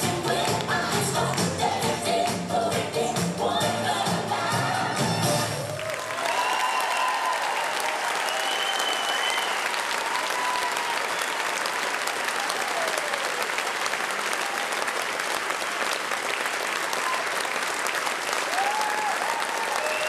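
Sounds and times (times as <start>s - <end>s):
audience applauding: 5.4s - 20.0s.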